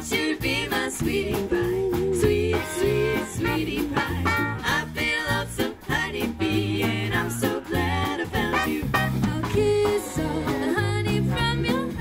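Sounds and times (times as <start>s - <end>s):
acoustic guitar: 0.0s - 12.0s
bass guitar: 0.0s - 12.0s
drums: 0.0s - 12.0s
women singing: 0.0s - 12.0s
horn section playing: 2.6s - 4.7s, 8.4s - 9.4s.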